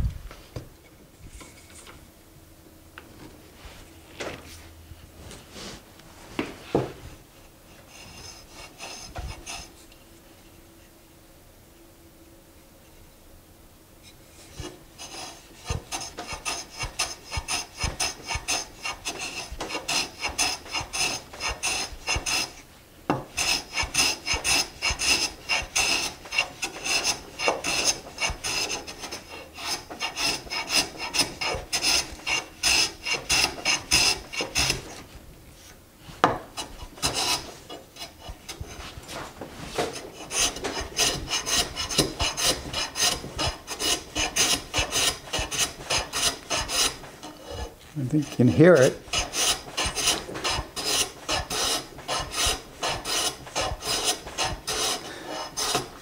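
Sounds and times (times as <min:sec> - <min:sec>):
hand plane scraping wood: 0:07.8 - 0:09.7, 0:14.4 - 0:56.0.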